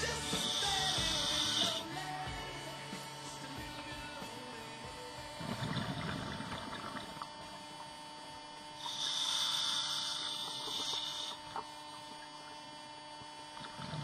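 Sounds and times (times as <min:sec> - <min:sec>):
steady electrical hum: 0:00.0 - 0:14.0
inhalation hiss: 0:00.2 - 0:01.9, 0:08.8 - 0:11.6
scuba regulator breathing underwater: 0:08.8 - 0:11.5.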